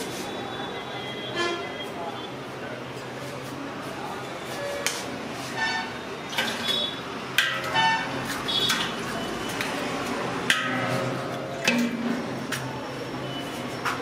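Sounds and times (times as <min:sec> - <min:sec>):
eggs cracking against metal pot: 0:06.3 - 0:12.7.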